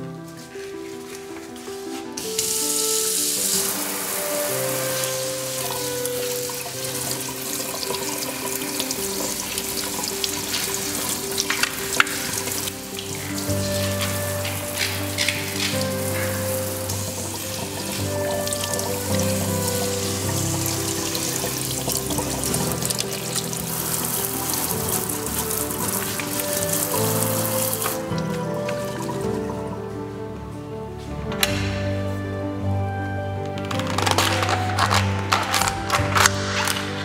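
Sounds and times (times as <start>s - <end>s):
background music with sustained notes: 0.0s - 37.0s
tap water splashing in a sink: 4.8s - 29.2s.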